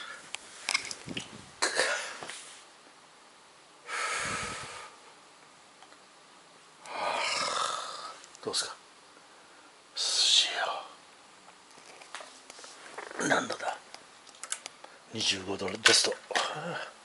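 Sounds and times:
person exhaling breathily: 0:03.9 - 0:05.0.

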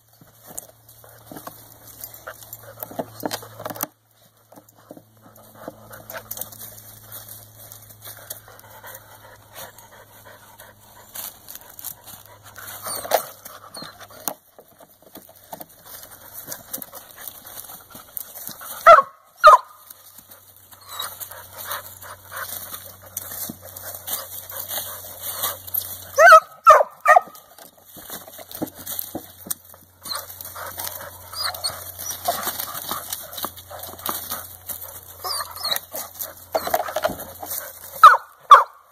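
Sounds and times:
dogs rustling in dry leaves: 0:00.0 - 0:38.9
dog barking sharply: 0:18.8 - 0:19.8, 0:26.2 - 0:27.4, 0:38.0 - 0:38.8.

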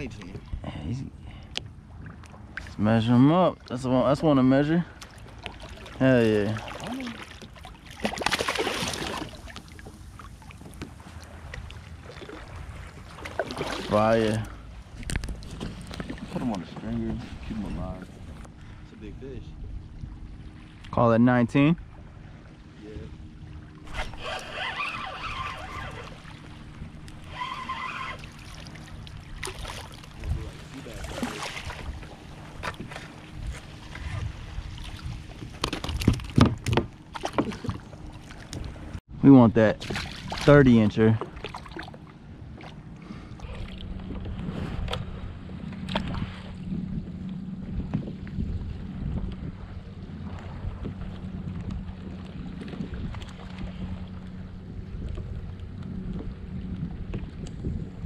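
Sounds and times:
water lapping: 0:00.0 - 0:58.0
fish thrashing and splashing: 0:06.6 - 0:09.9
wind on microphone: 0:14.1 - 0:20.3, 0:23.0 - 0:28.3, 0:30.1 - 0:39.0, 0:43.4 - 0:58.0
bumps on plastic kayak: 0:35.4 - 0:37.8.

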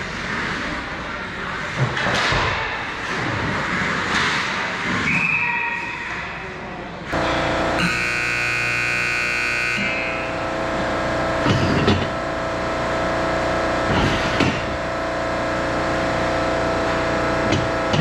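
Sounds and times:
steady mechanical hum: 0:00.0 - 0:18.0
scoreboard horn: 0:07.8 - 0:10.4.

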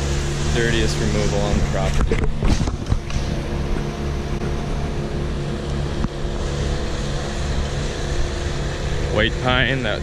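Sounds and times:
engine droning: 0:00.0 - 0:10.0.

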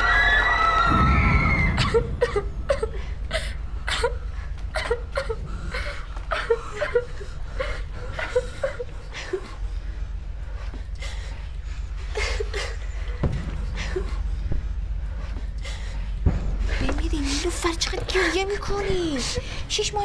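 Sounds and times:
low rumble: 0:00.0 - 0:20.0
girls and women sobbing: 0:01.7 - 0:09.9, 0:10.9 - 0:14.4.

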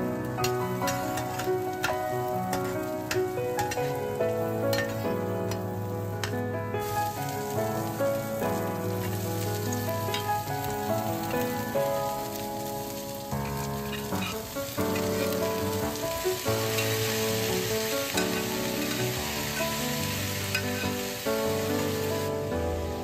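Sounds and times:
beans sizzling in a wok: 0:00.0 - 0:23.0
gentle piano music: 0:00.0 - 0:23.0
metal ladle clinking against pan: 0:04.7 - 0:05.0.

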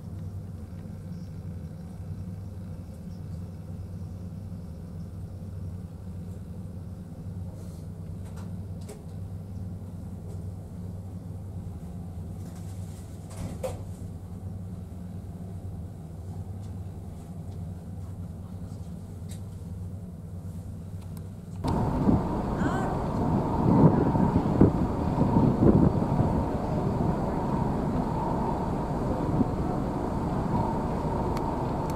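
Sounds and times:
ferry engines droning: 0:21.6 - 0:31.9.

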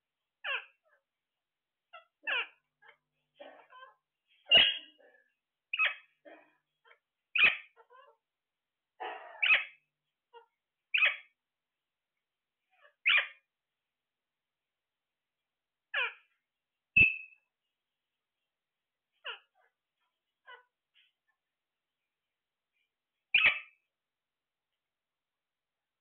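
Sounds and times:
parakeets squawking: 0:00.4 - 0:00.8, 0:01.9 - 0:03.0, 0:05.7 - 0:06.2, 0:07.4 - 0:08.1, 0:10.9 - 0:11.3, 0:15.9 - 0:16.3, 0:23.3 - 0:23.8
faint parakeet chatter: 0:00.4 - 0:01.1, 0:01.9 - 0:08.3, 0:09.0 - 0:11.4, 0:12.7 - 0:13.5, 0:15.9 - 0:16.4, 0:19.1 - 0:21.5, 0:22.8 - 0:23.9.

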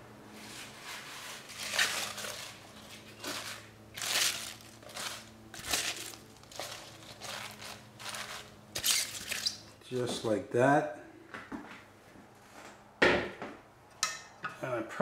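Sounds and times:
spinach leaves rustling: 0:00.4 - 0:09.8.

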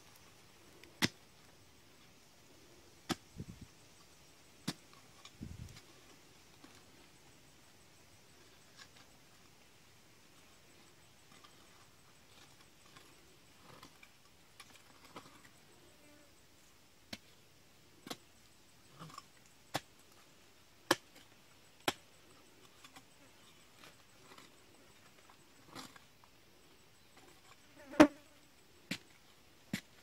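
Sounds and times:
digging tool chopping hard earth: 0:01.0 - 0:01.2, 0:20.9 - 0:22.0, 0:28.9 - 0:30.0.

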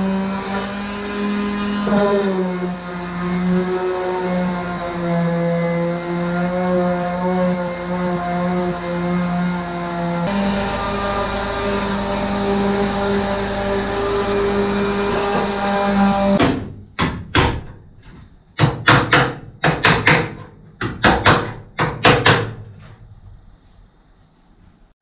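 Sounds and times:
pneumatic grinder running: 0:10.2 - 0:16.4
hammer striking sheet steel: 0:14.9 - 0:15.6, 0:18.6 - 0:22.6.

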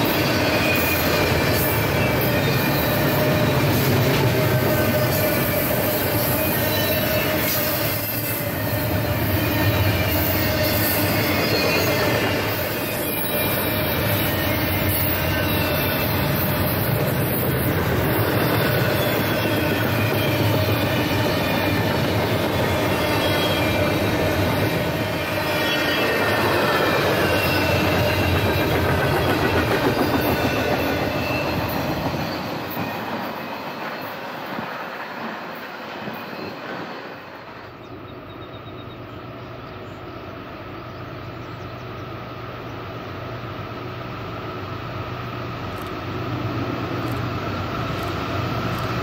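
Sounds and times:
high wheel squeal: 0:00.0 - 0:35.0
distant diesel train rumble: 0:00.0 - 0:49.0
train wheels clicking over rail joints: 0:09.1 - 0:36.8, 0:45.6 - 0:49.0.

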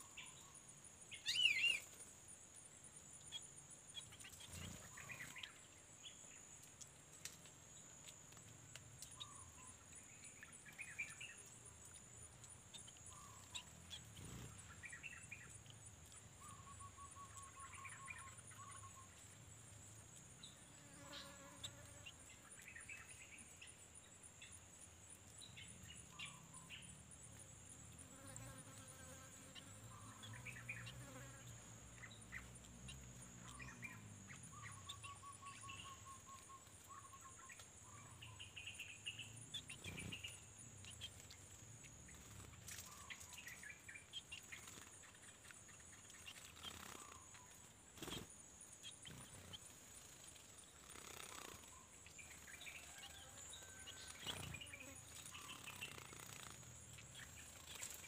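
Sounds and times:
bird chirps and rattling calls: 0:32.0 - 0:58.0
high-pitched insect trill: 0:48.0 - 0:58.0.

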